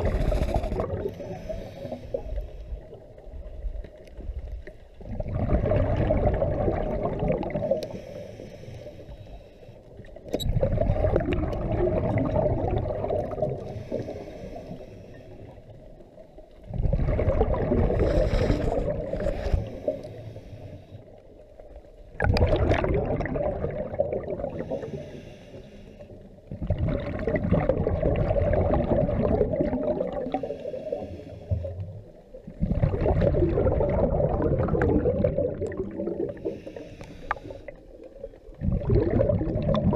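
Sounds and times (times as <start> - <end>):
diver breathing through regulator: 0.0 - 2.9, 7.7 - 9.9, 13.6 - 15.6, 17.8 - 21.2, 24.5 - 26.2, 30.2 - 31.8, 36.2 - 37.9
gurgling exhaled bubbles: 0.0 - 3.6, 5.0 - 8.0, 10.4 - 14.7, 16.6 - 20.0, 22.1 - 25.1, 26.4 - 39.9.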